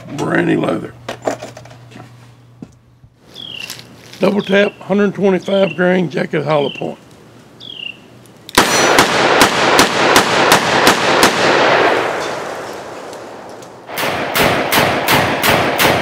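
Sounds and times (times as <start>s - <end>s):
gunshot echo: 8.6s - 16.0s.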